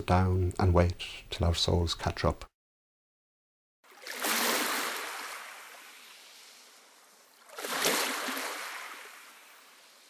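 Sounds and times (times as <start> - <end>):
surf waves breaking: 3.9 - 10.0.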